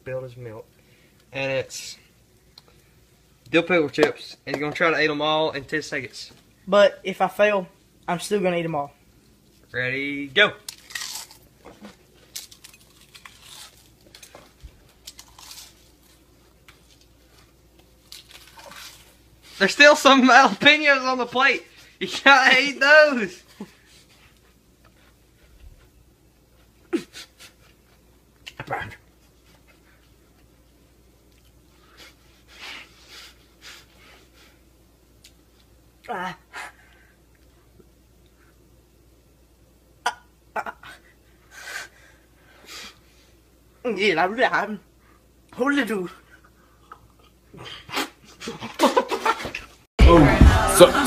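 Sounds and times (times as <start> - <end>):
chips being chewed: 10.7 - 17.1, 17.8 - 19.2.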